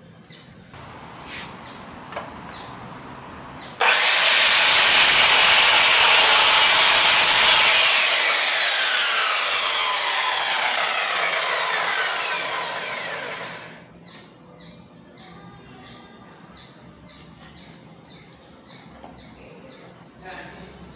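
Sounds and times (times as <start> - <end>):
miter saw motor whine: 3.8 - 13.8
saw blade cutting wood: 3.8 - 13.8.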